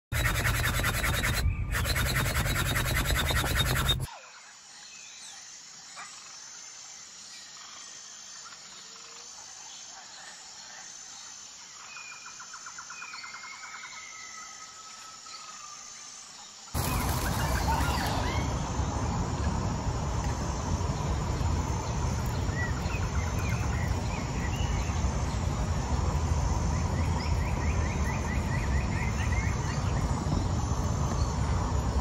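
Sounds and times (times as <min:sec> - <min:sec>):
electric air pump running: 0:00.0 - 0:04.1
birds whistling and trilling: 0:00.2 - 0:04.1.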